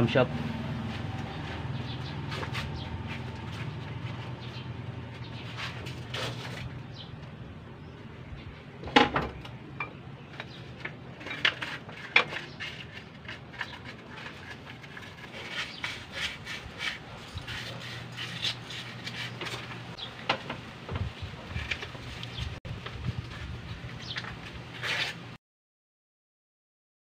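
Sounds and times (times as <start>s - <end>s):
metal engine parts clinking: 8.8s - 15.6s.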